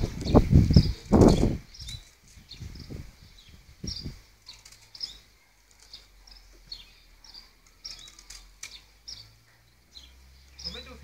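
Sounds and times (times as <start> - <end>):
small birds chirping: 0.0 - 11.0
faint sharp clicks: 7.6 - 8.8.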